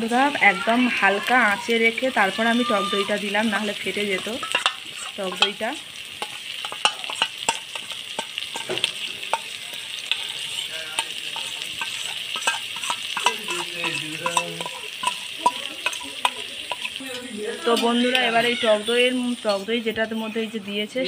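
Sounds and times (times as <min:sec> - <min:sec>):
masala sizzling in hot oil: 0:00.0 - 0:21.0
spatula scraping and clicking: 0:04.2 - 0:05.6, 0:06.2 - 0:17.9.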